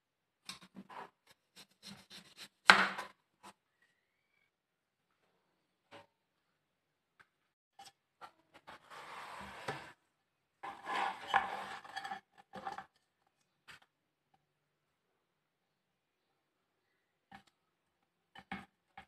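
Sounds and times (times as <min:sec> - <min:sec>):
plate scraping on cutting board: 0:10.6 - 0:12.2.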